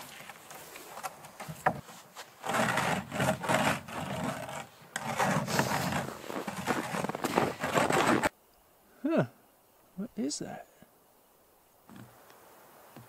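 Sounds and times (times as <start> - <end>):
cloth rustling: 4.0 - 8.3.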